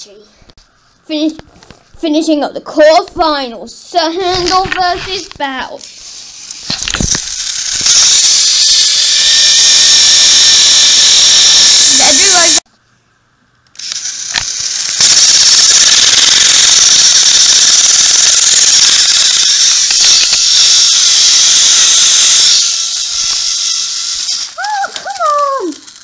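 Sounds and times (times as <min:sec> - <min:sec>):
toy train motor whirring: 0:04.3 - 0:12.6, 0:13.7 - 0:26.0.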